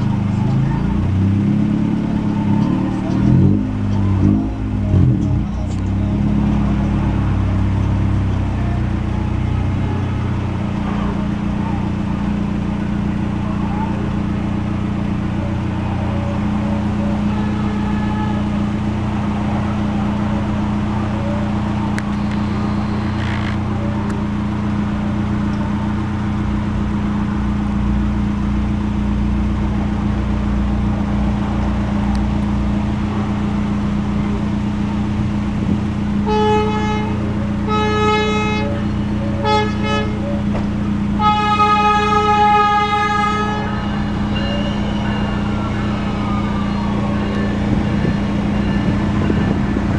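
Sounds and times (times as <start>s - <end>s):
train horn blasts: 17.1s - 19.2s, 36.2s - 40.3s, 41.2s - 49.9s.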